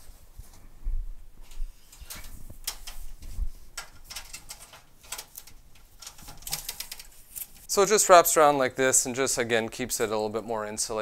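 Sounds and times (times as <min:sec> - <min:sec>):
fabric rustling against metal: 0:00.0 - 0:07.7.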